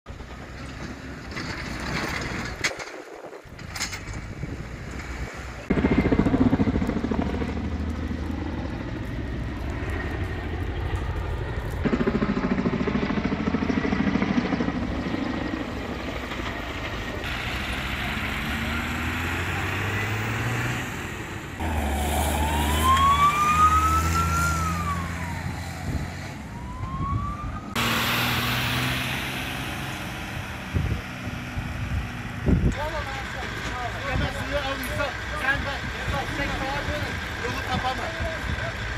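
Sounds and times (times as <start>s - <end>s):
vehicle engines running: 0.1s - 38.9s
emergency siren wailing: 17.2s - 31.0s.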